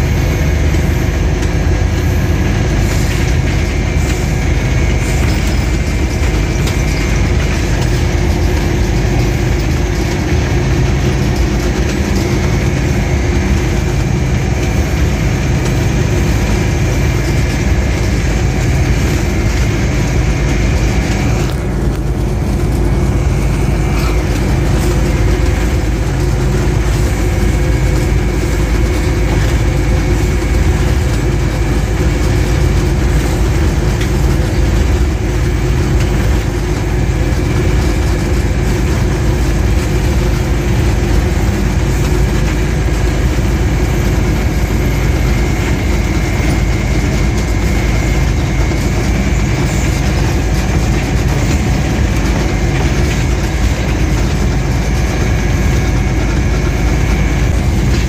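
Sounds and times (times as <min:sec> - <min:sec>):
locomotive engine drone: 0:00.0 - 0:58.0
wheels rumbling on rails: 0:00.0 - 0:58.0.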